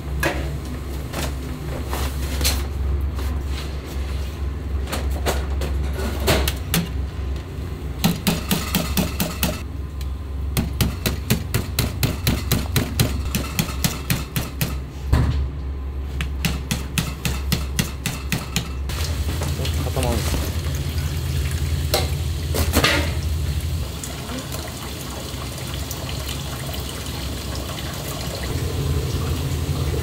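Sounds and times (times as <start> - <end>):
low hum: 28.5 - 30.0.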